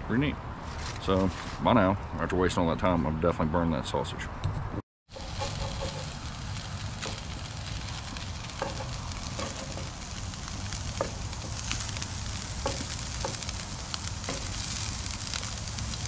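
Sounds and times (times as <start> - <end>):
potatoes and sausage sizzling: 5.1 - 16.0
wooden spatula scraping pan: 5.1 - 16.0.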